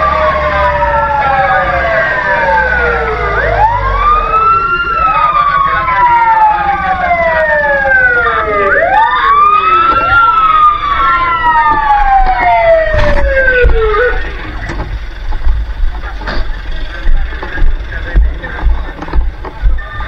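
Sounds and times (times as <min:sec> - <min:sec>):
fire truck sirens wailing: 0:00.0 - 0:20.0
steady low rumble: 0:10.3 - 0:20.0.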